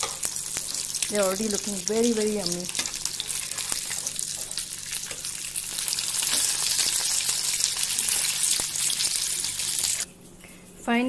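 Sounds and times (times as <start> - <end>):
fish sizzling in hot oil: 0.0 - 10.1.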